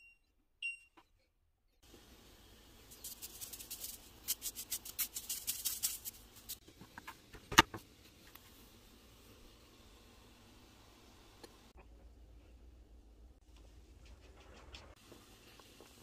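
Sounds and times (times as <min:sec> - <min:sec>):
salt rattling from shaker: 0:02.8 - 0:06.6.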